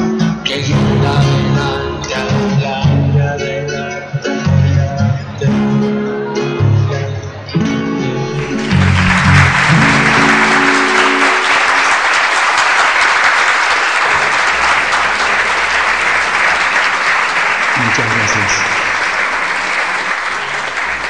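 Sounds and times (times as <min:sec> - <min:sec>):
live band final chords: 0:00.0 - 0:12.4
audience applause: 0:08.3 - 0:21.0.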